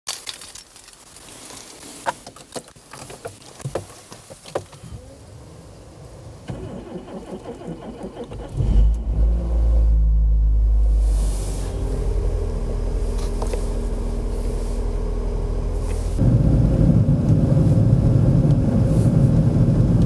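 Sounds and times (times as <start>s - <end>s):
car engine starting and running: 4.9s - 20.0s.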